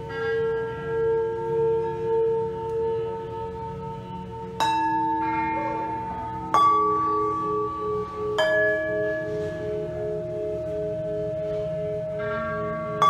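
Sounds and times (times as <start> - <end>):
singing bowls ringing: 0.0 - 13.0
mallet striking metal bowls: 4.6 - 13.0.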